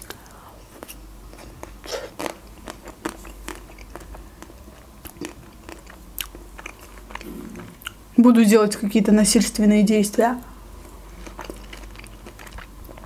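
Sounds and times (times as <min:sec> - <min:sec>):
chewing: 0:00.2 - 0:08.0, 0:10.8 - 0:13.0.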